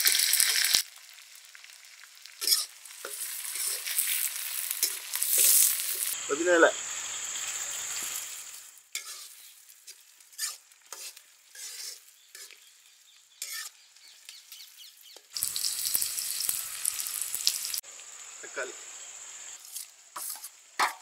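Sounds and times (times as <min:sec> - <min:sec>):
oil sizzling: 0:00.0 - 0:21.0
metal spatula scraping pan: 0:02.4 - 0:06.2, 0:08.9 - 0:12.6, 0:13.4 - 0:13.7.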